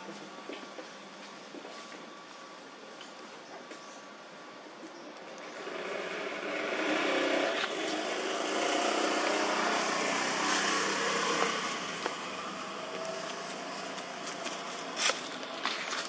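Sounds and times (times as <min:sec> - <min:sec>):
vehicle passing by: 0:05.5 - 0:15.8.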